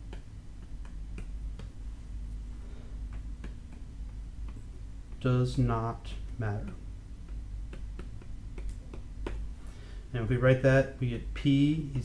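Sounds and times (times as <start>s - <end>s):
stylus tapping on tablet screen: 0.0s - 1.8s, 6.6s - 9.5s
low steady hum: 0.0s - 12.0s.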